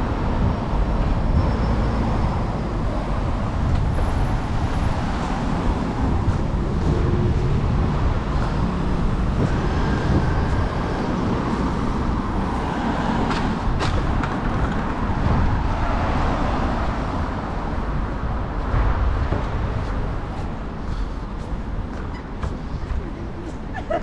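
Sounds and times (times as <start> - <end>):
street traffic rumble: 0.0 - 24.0.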